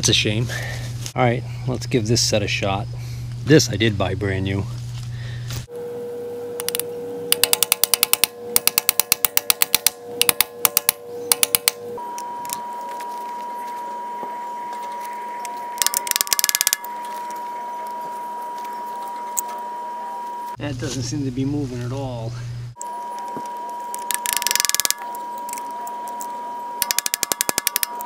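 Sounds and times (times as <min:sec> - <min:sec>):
socket wrench ratchet clicking: 0:06.6 - 0:11.8, 0:15.8 - 0:16.9, 0:23.9 - 0:25.6, 0:26.8 - 0:28.0.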